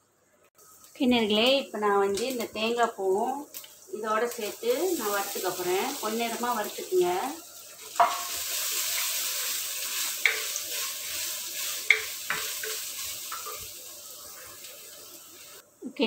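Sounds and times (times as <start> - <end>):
spices sizzling in oil: 0.6 - 15.8
spatula knocking against pot: 8.0 - 8.3, 11.9 - 13.6.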